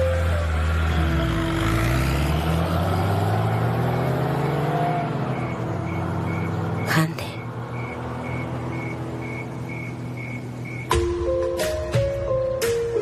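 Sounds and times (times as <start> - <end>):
car engine accelerating: 0.0 - 11.0
crickets chirping: 5.3 - 11.0.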